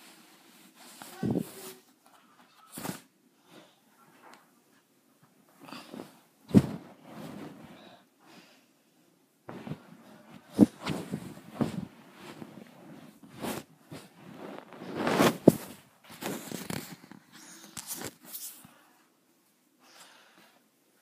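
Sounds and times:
blanket rustling: 0:05.7 - 0:08.0, 0:09.5 - 0:17.2.

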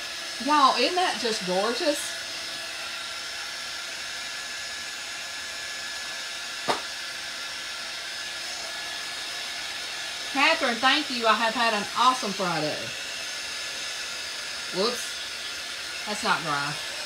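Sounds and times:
heat gun blowing: 0:00.0 - 0:17.0
short sharp tap: 0:06.6 - 0:06.9.

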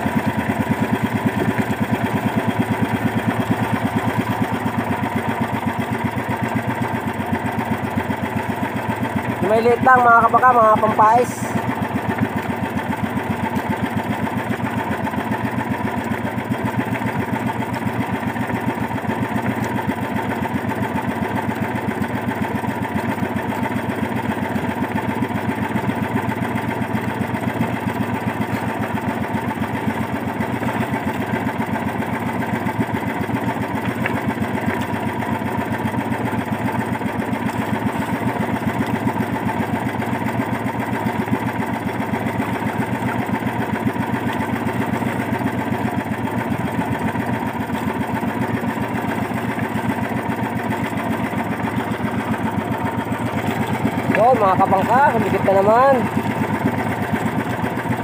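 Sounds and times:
small boat engine running: 0:00.0 - 0:58.0.

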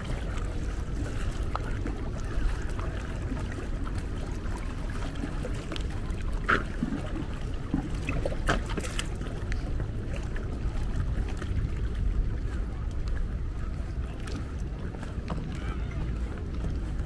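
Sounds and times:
water splashes: 0:00.0 - 0:17.0
waves lapping against stones: 0:00.0 - 0:17.0
wind buffeting microphone: 0:00.0 - 0:17.0.

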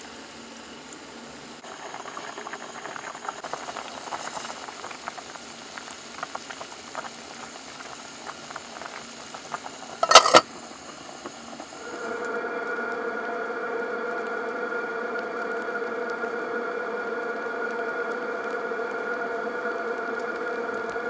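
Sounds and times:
liquid bubbling at a boil: 0:00.8 - 0:21.0
metallic clatter: 0:10.0 - 0:10.4.

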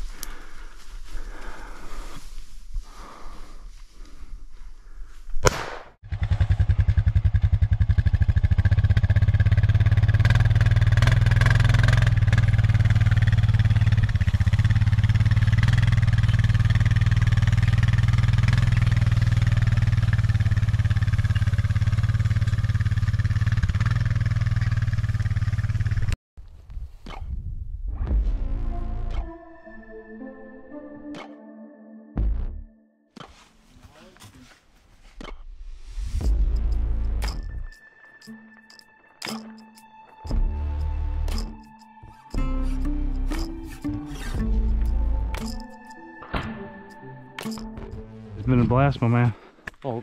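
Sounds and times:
sharp knock: 0:05.4 - 0:06.0
atv engine running: 0:06.0 - 0:26.2.

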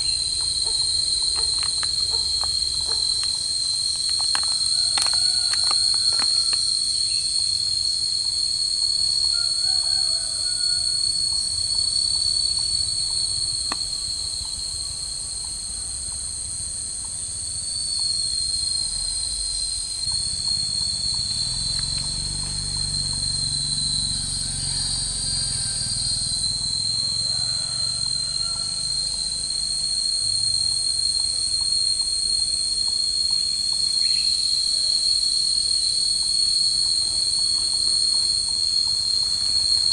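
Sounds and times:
chorus of insects droning: 0:00.0 - 0:39.9.

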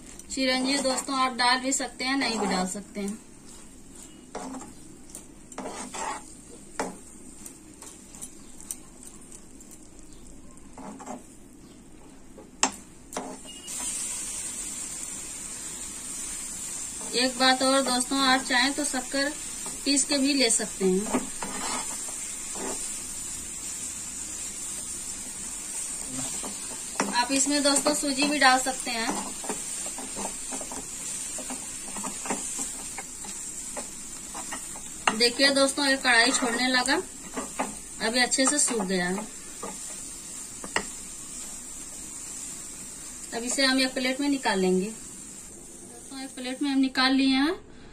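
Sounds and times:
faint sizzle: 0:00.0 - 0:47.9
spoon stirring and scraping pan: 0:00.1 - 0:14.5, 0:16.1 - 0:44.4
steady hiss: 0:13.0 - 0:47.0
faint hiss: 0:13.5 - 0:30.0.

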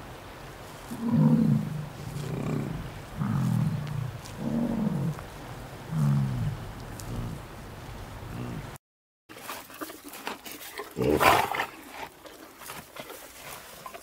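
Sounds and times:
animal calling low: 0:08.3 - 0:08.8.

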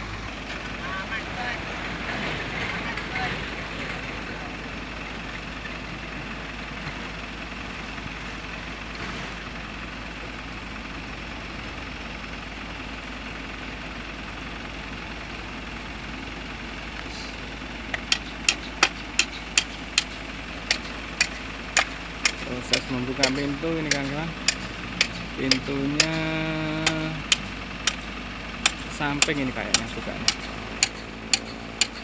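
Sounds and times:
excavator diesel engine running: 0:00.0 - 0:32.0
sharp knocks: 0:17.9 - 0:32.0.

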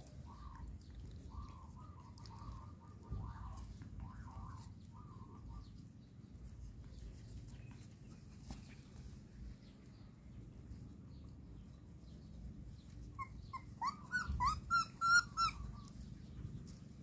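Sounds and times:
puppies scuffling: 0:06.4 - 0:09.9.

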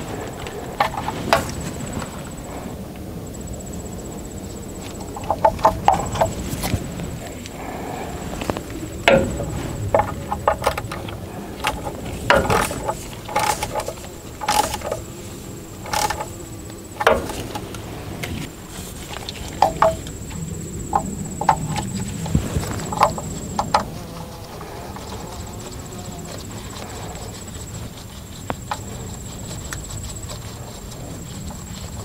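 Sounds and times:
ratchet clicking: 0:09.1 - 0:15.1, 0:15.8 - 0:16.4.

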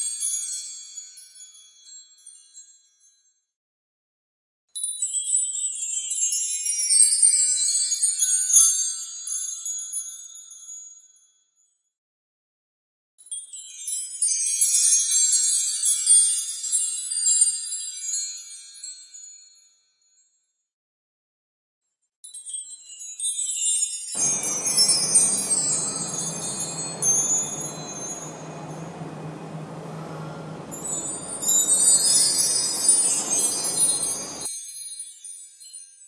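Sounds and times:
background noise: 0:24.2 - 0:34.5
steady low hum: 0:24.2 - 0:34.5
wind chimes tinkling: 0:24.2 - 0:35.8.

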